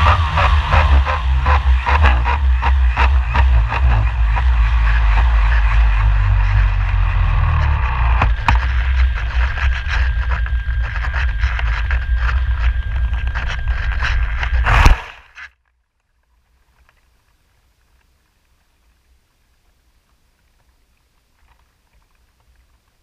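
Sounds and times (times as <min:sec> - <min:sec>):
wind buffeting camera: 0:00.0 - 0:15.3
glider scraping thud on grass: 0:14.0 - 0:15.4.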